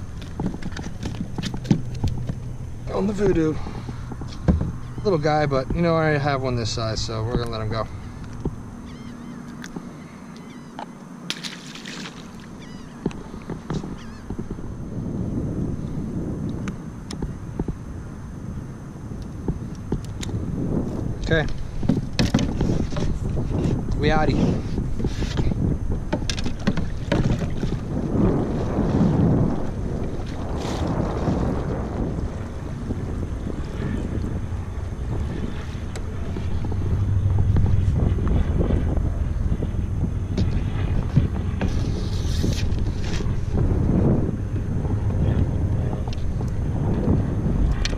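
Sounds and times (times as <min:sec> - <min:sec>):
wind buffeting microphone: 0:00.0 - 0:10.6, 0:11.8 - 0:47.9
pole knocking on plastic boat: 0:04.4 - 0:04.8, 0:21.8 - 0:23.2, 0:26.1 - 0:27.8
short high bird calls: 0:08.8 - 0:10.8, 0:12.6 - 0:13.0
low rumble: 0:14.2 - 0:47.9.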